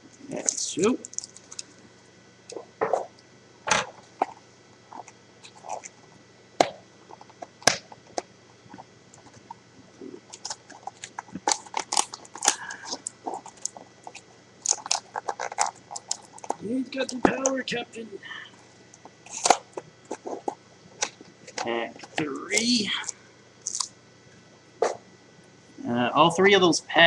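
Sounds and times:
plastic wrapper crinkling and tearing: 0.3s - 1.8s, 10.2s - 17.5s, 19.3s - 21.6s, 22.5s - 23.9s.

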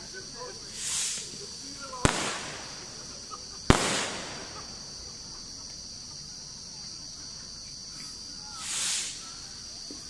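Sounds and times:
firework shells bursting: 2.0s - 5.1s.

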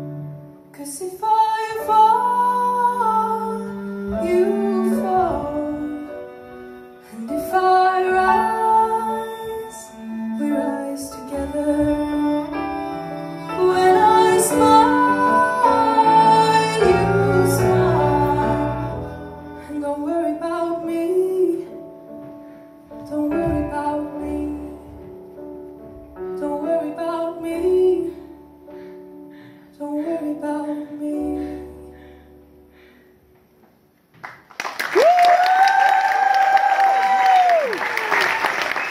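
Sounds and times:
woman singing: 0.7s - 6.4s, 7.0s - 21.9s, 23.0s - 25.2s, 26.3s - 28.5s, 29.7s - 32.0s
cello: 1.4s - 33.0s
audience applause: 34.2s - 38.9s
person cheering: 34.9s - 38.8s.

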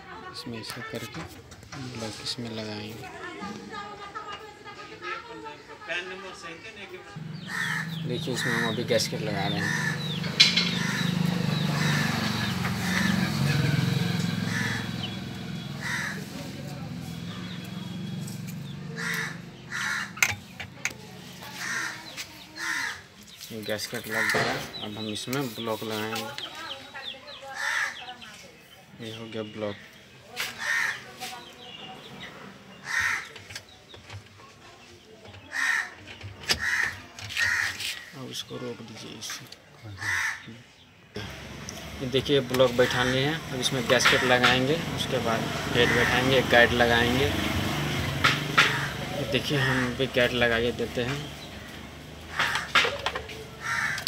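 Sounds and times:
crow cawing: 7.2s - 13.7s, 14.4s - 16.5s, 18.9s - 20.4s, 21.4s - 23.1s, 24.1s - 24.7s, 27.5s - 28.2s, 30.6s - 31.1s, 32.8s - 33.4s, 35.5s - 38.2s, 40.0s - 40.6s, 45.7s - 46.5s, 48.2s - 50.1s, 51.6s - 54.0s
engine idling: 7.2s - 21.9s, 41.2s - 54.0s.

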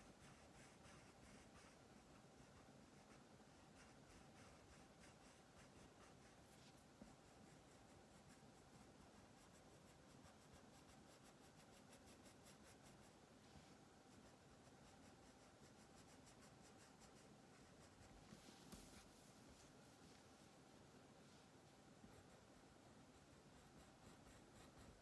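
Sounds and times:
crayon scratching on paper: 14.1s - 19.0s, 23.1s - 25.0s.

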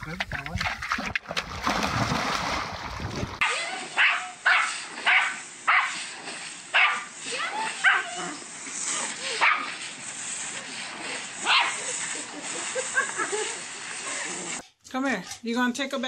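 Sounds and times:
garden hose spraying water: 3.4s - 14.6s
small dog barking: 4.0s - 6.0s, 6.8s - 7.1s, 7.8s - 8.3s, 9.4s - 9.7s.

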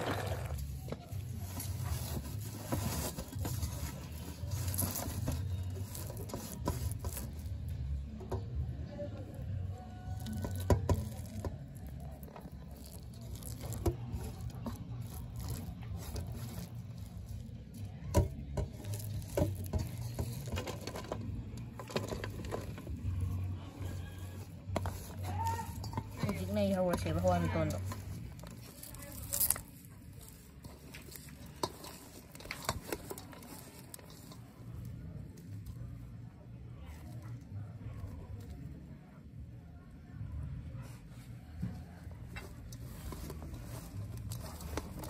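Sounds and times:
hands mixing food on steel plate: 0.0s - 36.0s, 40.8s - 45.0s.

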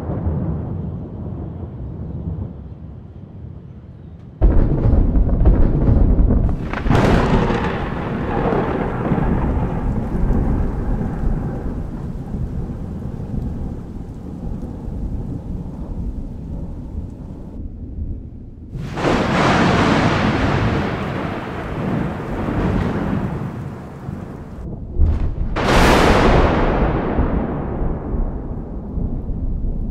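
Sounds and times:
rolling thunder rumble: 0.0s - 3.1s, 4.4s - 29.9s
sharp thunder crack: 4.4s - 17.6s, 18.7s - 29.9s
thunder clap: 4.4s - 17.6s, 18.7s - 29.9s
rain falling: 6.4s - 17.6s, 18.8s - 24.7s.

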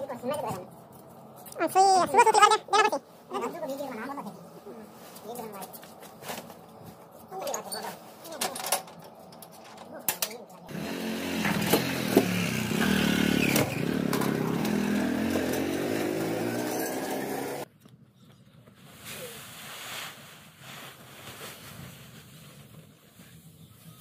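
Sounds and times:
motorcycle engine running: 10.7s - 17.6s
faint rustles of dry fodder: 18.7s - 24.0s.

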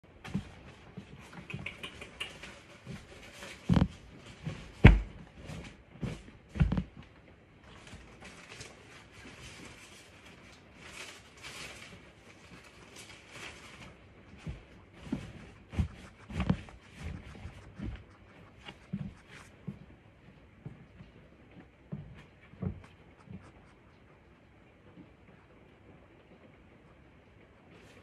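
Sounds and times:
hedgehog sniffing: 12.2s - 20.2s, 22.1s - 28.0s
dull thumps: 14.3s - 19.9s.

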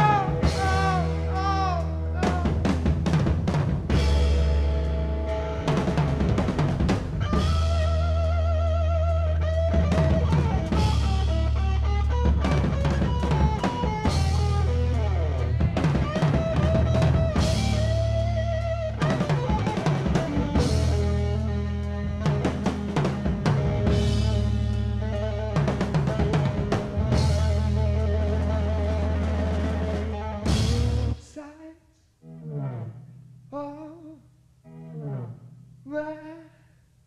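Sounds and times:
wavering lead guitar notes: 0.0s - 3.3s, 3.9s - 31.2s
drum kit with cymbal crashes: 0.0s - 8.8s, 9.5s - 21.5s, 22.1s - 25.0s, 25.6s - 31.2s.

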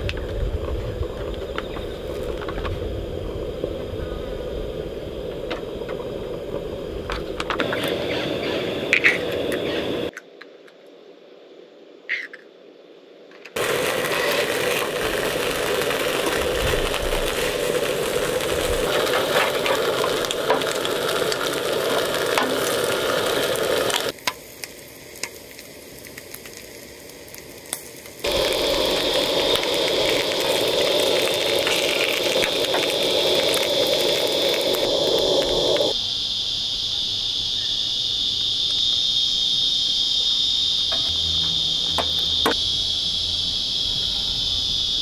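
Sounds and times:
crickets chirring: 0.0s - 45.0s
bacon and eggs sizzling in a pan: 13.6s - 36.0s.

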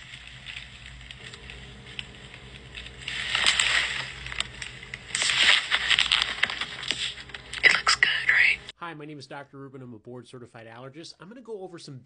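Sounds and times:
phone handling rustle: 0.0s - 7.8s
steady low hum: 0.0s - 8.8s.

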